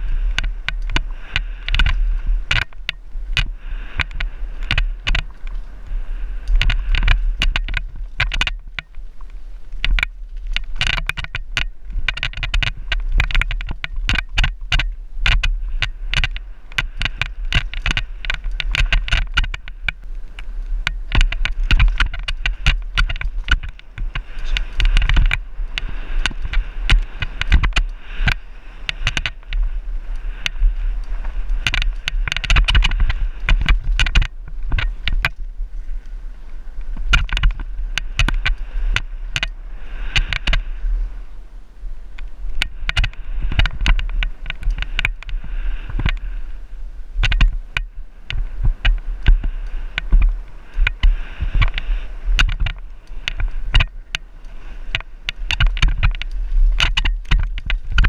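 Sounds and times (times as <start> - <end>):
bike rattling over bumps: 0.0 - 41.4, 42.0 - 58.0
wind rumble on microphone: 0.0 - 58.0.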